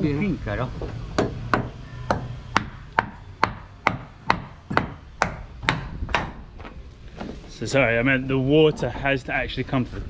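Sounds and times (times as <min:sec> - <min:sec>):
hand tool striking wood: 0:00.8 - 0:06.4.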